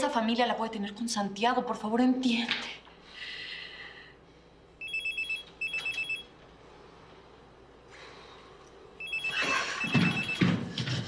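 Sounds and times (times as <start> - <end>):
telephone ringing: 4.8 - 6.4, 9.0 - 10.8.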